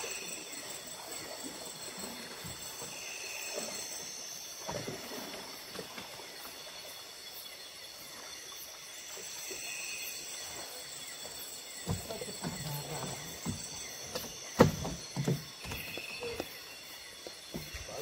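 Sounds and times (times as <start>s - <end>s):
night insects chirring: 0.0s - 18.0s
knocks on a boat: 11.8s - 16.0s.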